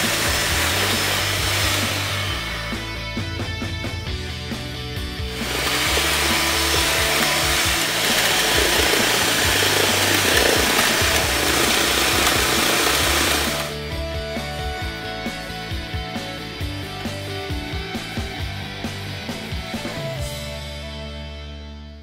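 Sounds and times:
electric hand mixer whirring: 0.0s - 2.8s, 5.2s - 13.8s
background music: 0.0s - 22.0s.

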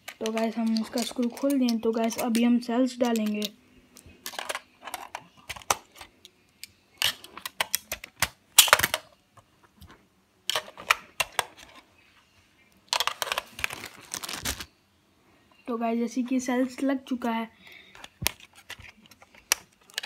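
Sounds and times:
batteries clicking into compartment: 0.0s - 3.5s.

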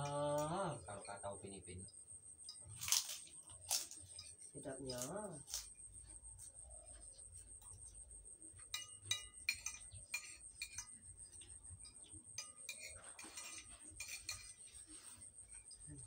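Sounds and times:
metal spoon clinking on plate: 8.6s - 14.8s.

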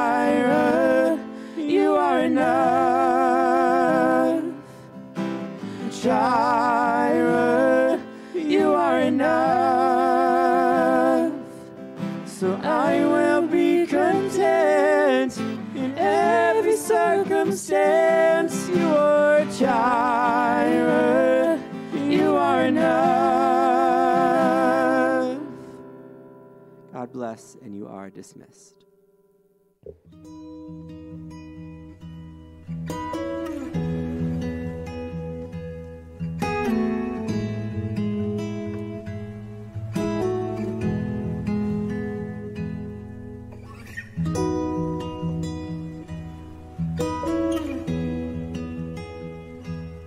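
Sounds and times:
man singing: 0.0s - 4.7s, 5.8s - 11.6s, 12.3s - 25.6s
woman singing: 0.0s - 4.7s, 5.8s - 11.6s, 12.3s - 25.6s
strummed acoustic guitar: 0.0s - 28.0s, 29.9s - 50.0s.

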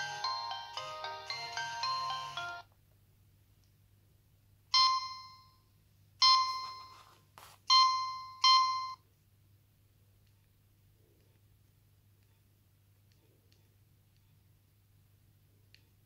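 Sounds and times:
phone ringtone melody: 0.0s - 2.7s, 6.2s - 7.1s, 7.7s - 9.0s.

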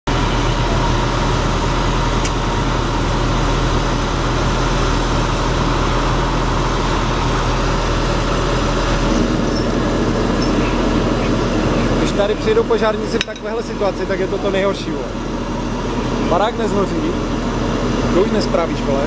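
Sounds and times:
fire engine pump running: 0.0s - 19.0s.

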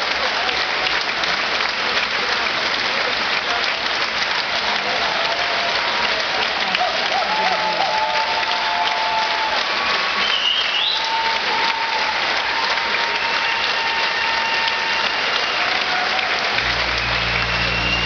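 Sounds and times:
audience applauding: 0.0s - 18.0s
low steady note: 16.6s - 18.0s.

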